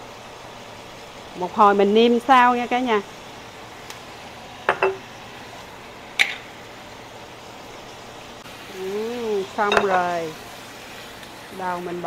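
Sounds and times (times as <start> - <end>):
sauce pouring hiss: 0.0 - 12.0
glass jar clinking on pan: 4.7 - 5.0, 9.7 - 10.0.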